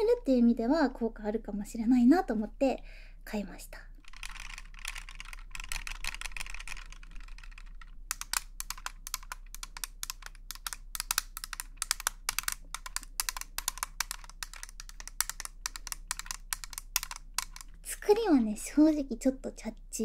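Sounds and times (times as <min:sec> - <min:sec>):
tapping and clicking on hard plastic: 0:04.2 - 0:17.8.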